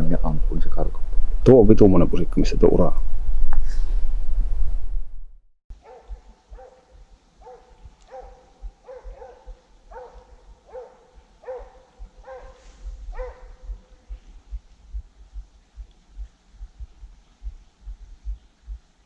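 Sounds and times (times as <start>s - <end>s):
hound barking: 5.7s - 14.1s.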